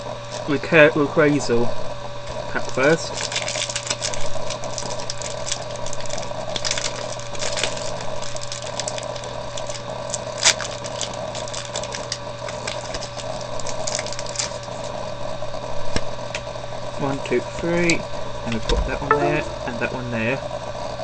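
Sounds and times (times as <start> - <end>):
foil pack crinkling: 2.6 - 14.6.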